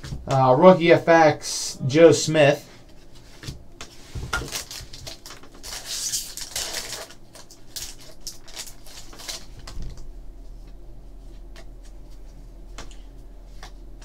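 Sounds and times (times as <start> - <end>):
foil wrapper crinkling: 4.3 - 10.1.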